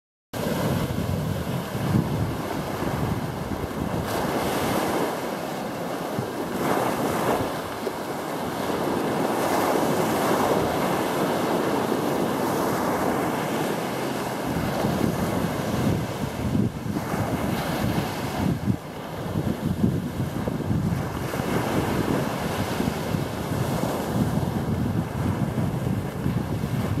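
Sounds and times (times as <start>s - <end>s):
small waves breaking on shore: 0.4s - 27.0s
wind buffeting microphone: 0.4s - 27.0s.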